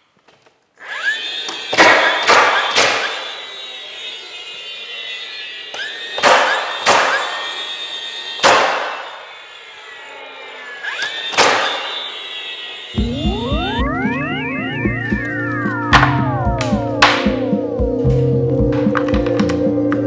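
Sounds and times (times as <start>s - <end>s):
tool motor whine: 0.8s - 20.0s
nailer firing sharp snaps: 1.7s - 3.2s, 5.8s - 7.3s, 8.4s - 9.0s, 11.0s - 11.9s
background music: 13.0s - 20.0s.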